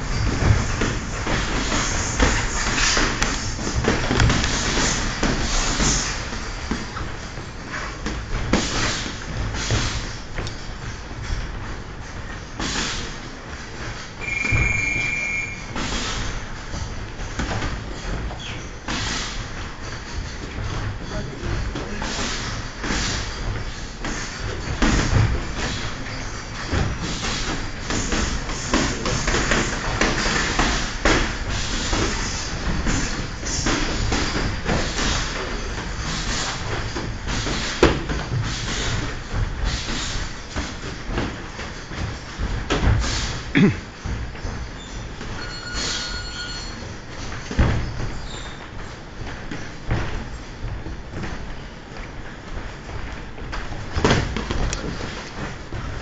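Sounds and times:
boxing gloves thudding and slapping: 0:00.0 - 0:13.2, 0:15.8 - 0:45.4, 0:47.2 - 0:56.0
feet moving on ring canvas: 0:00.0 - 0:56.0
high squeak: 0:14.2 - 0:15.8, 0:44.8 - 0:46.8.

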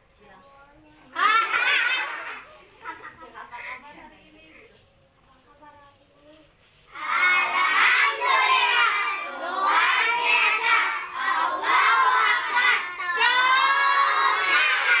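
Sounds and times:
children singing: 0:06.9 - 0:15.0.

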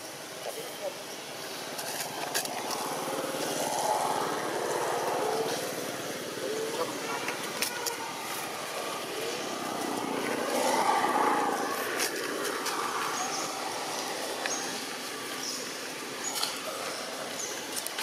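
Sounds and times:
outdoor background noise: 0:00.0 - 0:18.0
vehicle passing: 0:02.1 - 0:16.1.

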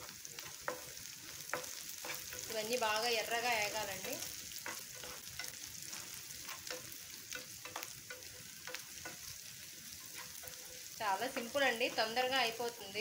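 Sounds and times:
food sizzling in oil: 0:00.0 - 0:13.0
spatula clicking against pan: 0:06.4 - 0:09.3.

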